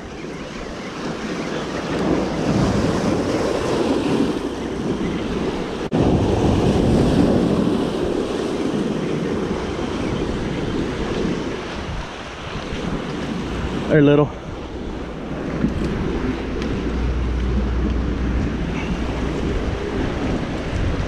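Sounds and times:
wind buffeting microphone: 0:00.0 - 0:21.0
waves breaking against rocks: 0:00.3 - 0:21.0.

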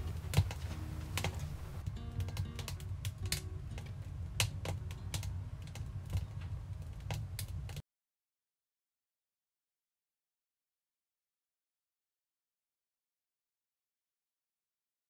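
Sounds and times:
faint music: 0:00.0 - 0:07.8
low steady rumble: 0:00.0 - 0:07.8
wood fire crackling: 0:00.0 - 0:07.8.

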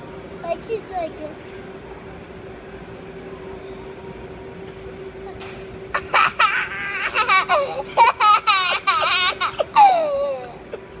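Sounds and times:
faint steady hum: 0:00.0 - 0:11.0
young child laughing: 0:06.0 - 0:11.0.

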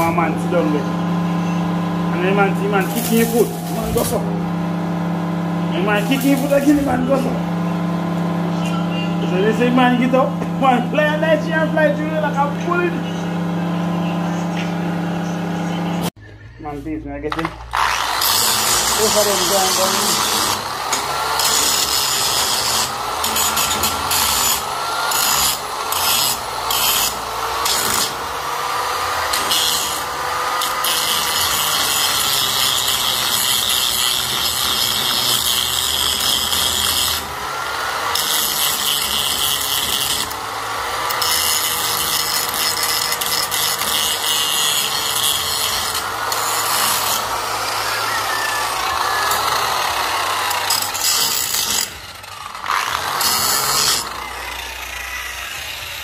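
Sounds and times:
angle grinder grinding metal: 0:00.0 - 0:16.1, 0:17.3 - 0:56.0.

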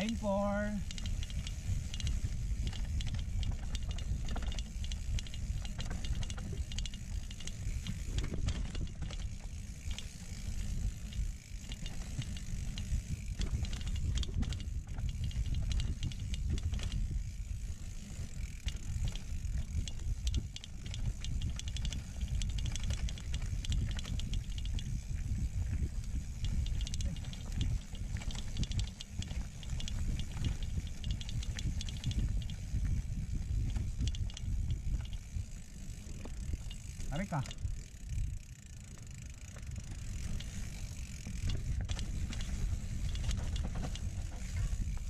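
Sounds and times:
chain and frame rattling: 0:00.0 - 0:38.2
bike freehub ratcheting: 0:00.0 - 0:45.0
low wind rumble: 0:00.0 - 0:45.0.

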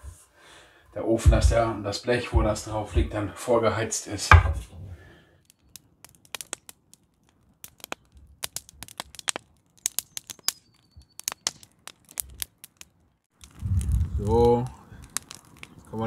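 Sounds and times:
wood fire crackling: 0:00.0 - 0:16.0
snaps and pops from burning wood: 0:05.4 - 0:13.6, 0:14.2 - 0:16.0.

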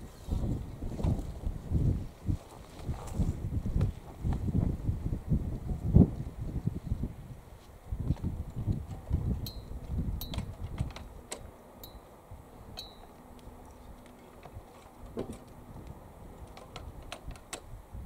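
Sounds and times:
wind buffeting microphone: 0:00.0 - 0:11.6, 0:12.3 - 0:18.0
faint steady drone: 0:08.4 - 0:17.1.

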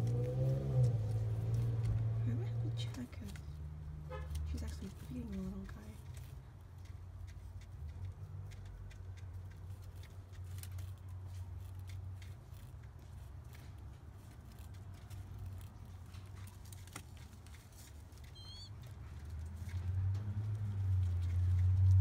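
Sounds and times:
high chirp: 0:18.3 - 0:18.7.

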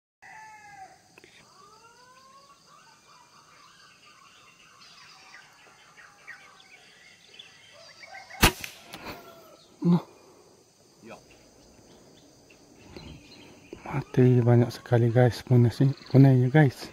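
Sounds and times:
air rifle shot: 0:08.4 - 0:09.1.

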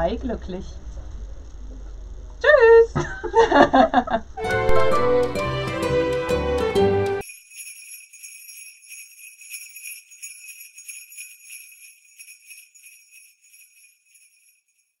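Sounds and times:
jingle bells shaking: 0:07.2 - 0:15.0.

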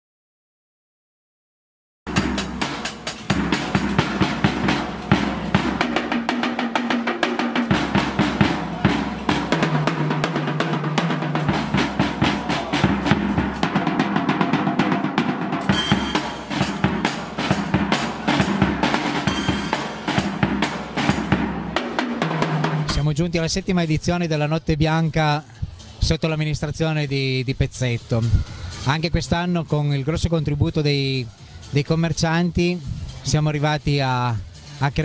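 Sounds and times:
bass line: 0:02.1 - 0:21.8
drum kit fast beat: 0:02.1 - 0:23.3.

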